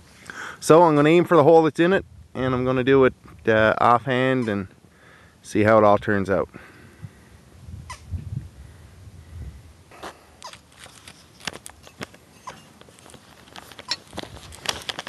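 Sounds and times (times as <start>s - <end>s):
camera handling rumble: 10.0s - 15.0s
fingers clicking and scraping microphone: 10.0s - 15.0s.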